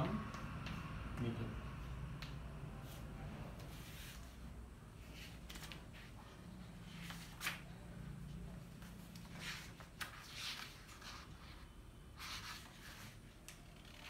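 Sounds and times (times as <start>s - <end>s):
paper rustling and scraping: 8.8s - 14.0s.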